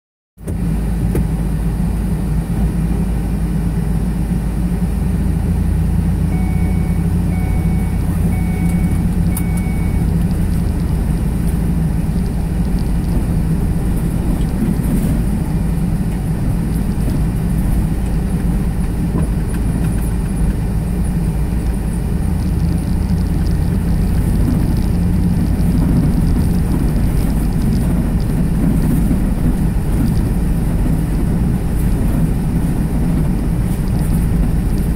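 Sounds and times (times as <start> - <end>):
car engine and tyre rumble: 0.4 - 34.9
short beeps: 6.3 - 10.2.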